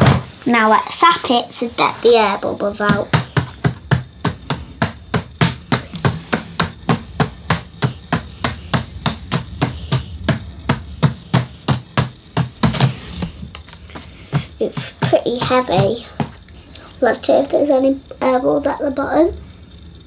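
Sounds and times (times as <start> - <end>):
hands tapping on tabletop: 2.9 - 16.4.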